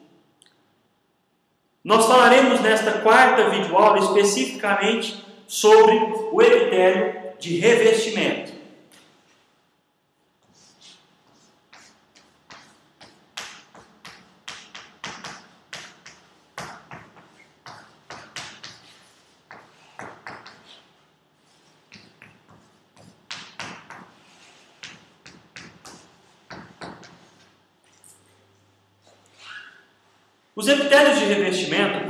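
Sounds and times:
chalk tapping and scratching: 10.4s - 27.6s.

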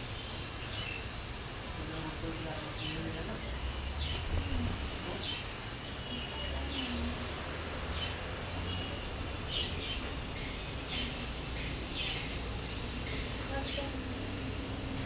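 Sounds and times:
steady background hiss: 0.0s - 15.0s
high bird chirps: 8.0s - 15.0s.

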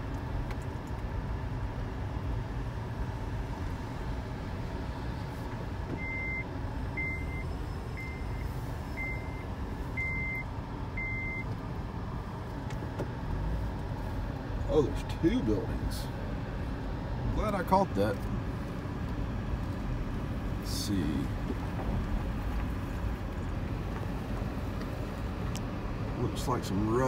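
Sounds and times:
vehicle rumble from cabin: 0.0s - 27.0s
short electronic beeps: 10.0s - 11.5s.

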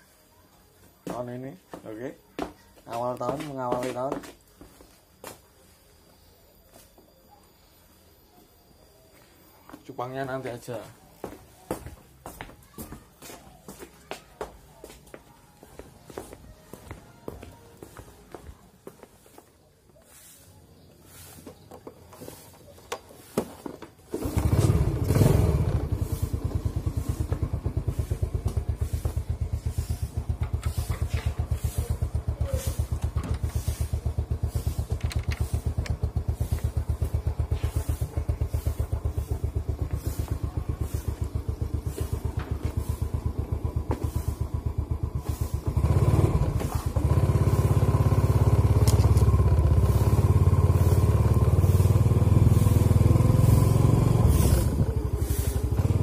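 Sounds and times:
small motorcycle engine idling: 20.5s - 56.0s.

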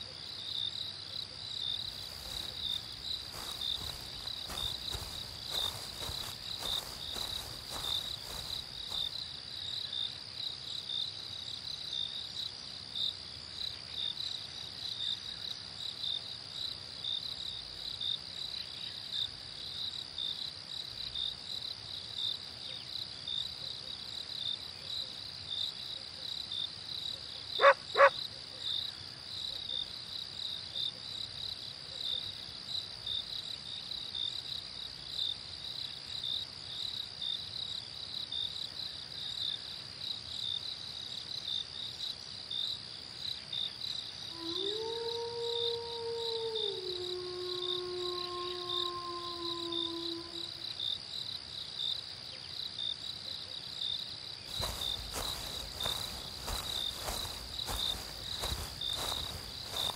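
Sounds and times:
crickets chirping: 0.0s - 59.9s
dog barking: 27.6s - 28.2s.

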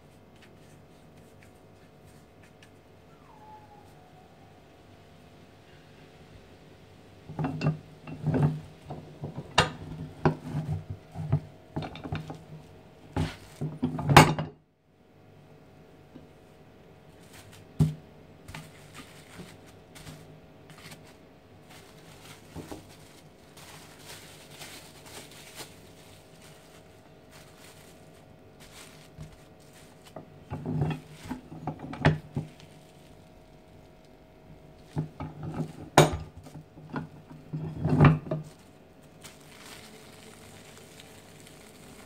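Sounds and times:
kitchen knocks and clinks: 7.3s - 12.4s, 13.2s - 14.6s, 30.5s - 32.5s, 34.9s - 38.5s
cling film crinkling: 18.5s - 30.2s, 32.3s - 34.2s, 38.4s - 42.0s.

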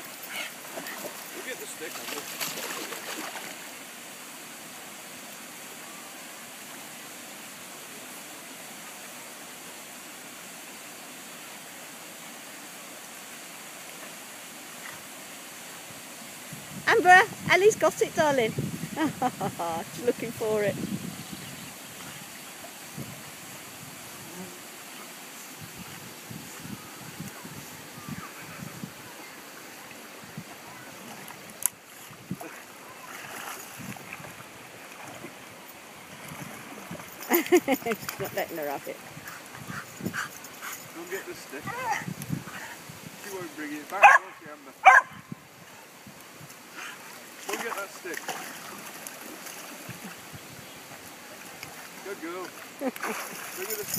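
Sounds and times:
water sloshing: 0.0s - 3.8s, 28.1s - 42.0s, 46.8s - 50.3s, 50.9s - 53.9s
steady outdoor hiss: 0.0s - 53.9s
dogs splashing in water: 0.2s - 3.6s, 46.8s - 50.3s, 51.5s - 53.9s.

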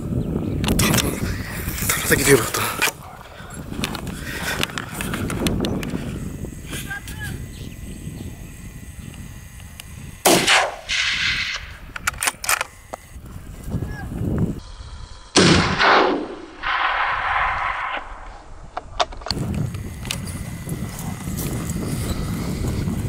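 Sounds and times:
faint clicks: 3.8s - 6.0s
gunshots with rolling echo: 10.3s - 11.6s, 15.4s - 18.4s.

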